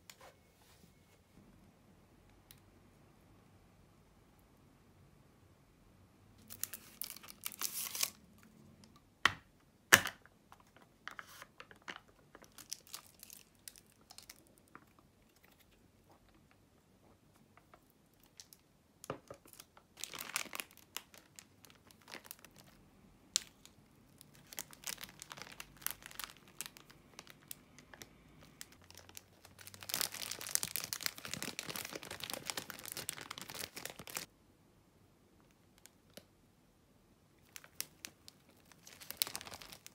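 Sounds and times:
plastic film crinkling: 6.4s - 8.2s, 11.2s - 14.8s, 19.3s - 34.3s, 37.4s - 39.9s
plastic wrapper rustling: 6.4s - 8.2s, 11.2s - 16.5s, 17.6s - 34.3s, 37.4s - 39.9s.

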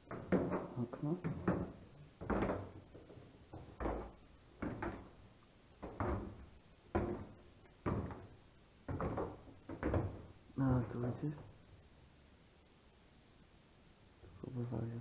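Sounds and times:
footsteps on stairs: 0.0s - 11.5s.

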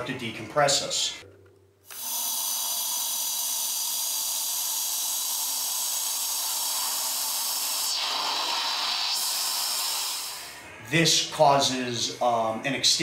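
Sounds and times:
pressurized air hissing from valve: 1.9s - 10.5s.

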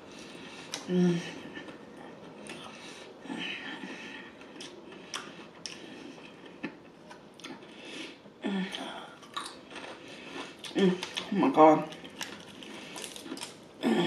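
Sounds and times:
person chewing: 3.8s - 7.7s, 8.7s - 13.6s.

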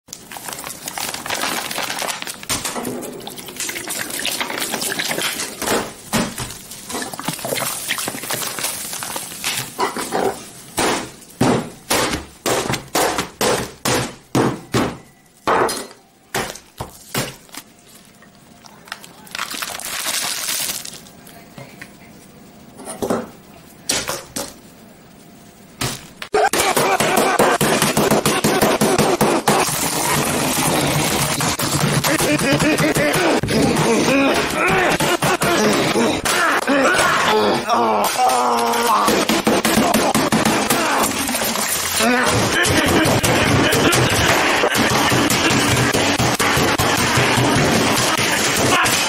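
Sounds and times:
hard smashing hits with breaking: 38.1s - 49.0s.

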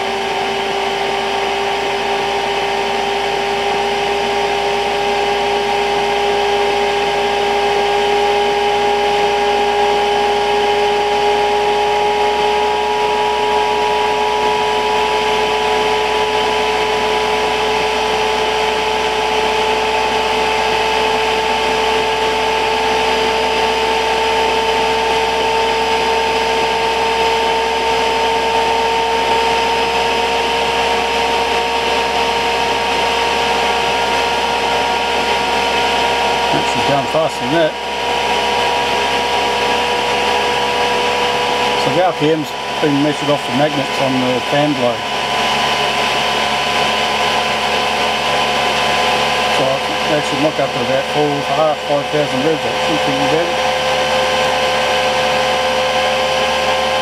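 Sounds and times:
heater fan motor whine: 0.0s - 57.0s.

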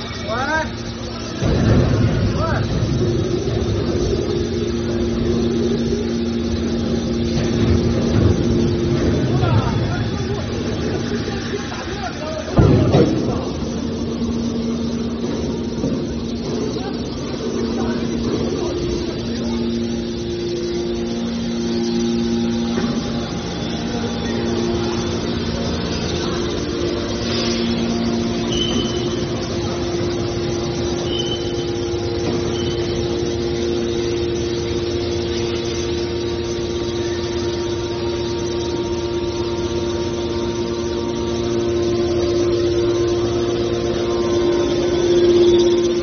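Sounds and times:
hydraulic machinery humming: 0.0s - 46.0s
brief high squeaks: 28.5s - 29.1s.

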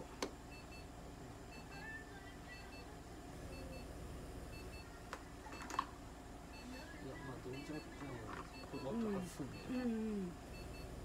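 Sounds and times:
medical equipment double beeps: 6.5s - 9.9s.

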